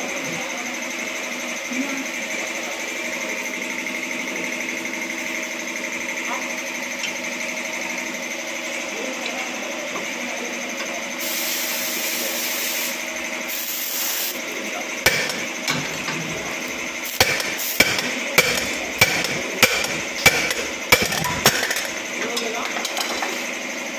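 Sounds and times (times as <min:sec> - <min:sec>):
machine hum: 0:00.0 - 0:23.9
short bursts of hiss: 0:11.2 - 0:14.4
hammer striking metal: 0:15.1 - 0:16.1, 0:17.1 - 0:22.0.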